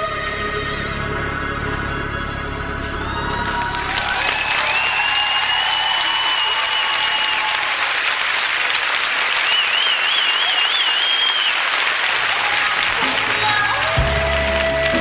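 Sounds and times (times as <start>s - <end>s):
audience applauding: 3.0s - 15.0s
person whistling: 9.5s - 11.6s.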